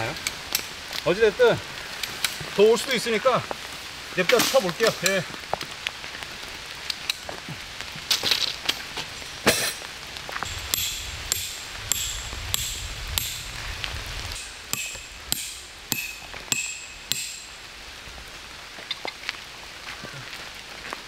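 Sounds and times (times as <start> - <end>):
rain pattering: 0.0 - 21.0
hammer striking metal stakes: 10.7 - 13.4, 14.4 - 17.6.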